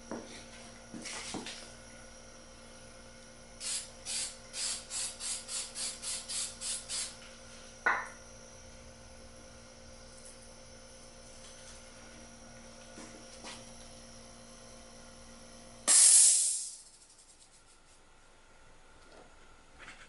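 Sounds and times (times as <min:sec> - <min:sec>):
airbrush hissing bursts: 0:03.6 - 0:07.2, 0:15.9 - 0:16.8.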